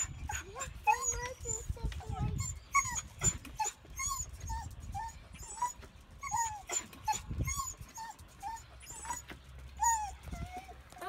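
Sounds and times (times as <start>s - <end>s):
dog whining: 0.0s - 11.0s.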